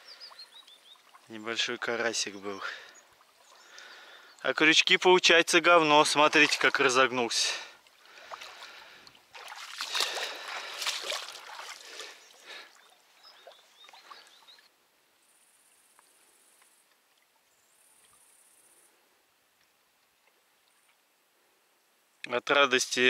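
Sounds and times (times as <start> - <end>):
shallow water splashing: 0.0 - 14.7.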